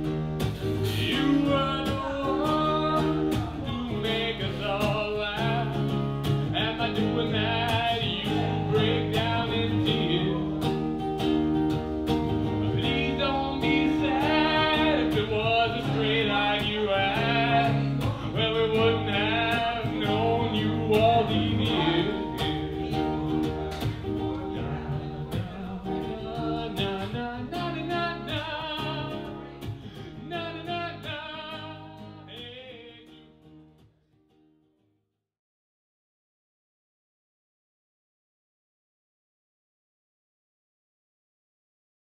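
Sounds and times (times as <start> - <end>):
acoustic guitar strumming: 0.0 - 34.8
man singing: 0.6 - 11.1, 12.4 - 33.5.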